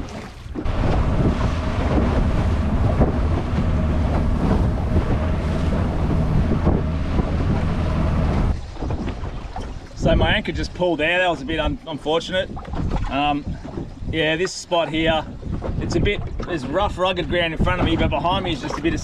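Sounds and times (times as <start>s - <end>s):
outboard motor running: 0.0s - 10.4s
water rushing past hull: 0.0s - 19.0s
wind on microphone: 0.0s - 19.0s.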